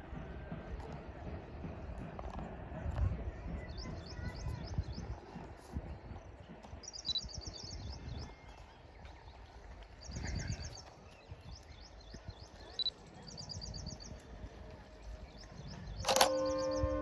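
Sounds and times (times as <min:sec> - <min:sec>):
wind gusting on microphone: 0:01.9 - 0:17.0
small bird chirping trill: 0:06.8 - 0:08.6.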